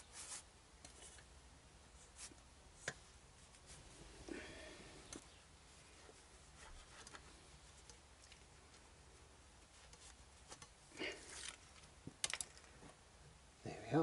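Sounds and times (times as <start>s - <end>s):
soft rubbing through cloth: 0.0s - 1.2s, 1.9s - 4.3s, 5.3s - 10.6s.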